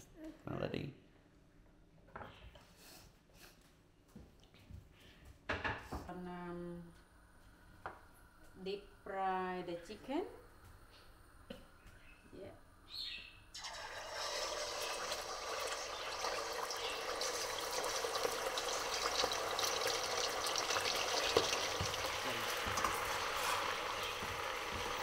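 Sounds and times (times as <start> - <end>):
chicken deep-frying in hot oil: 13.5 - 25.0.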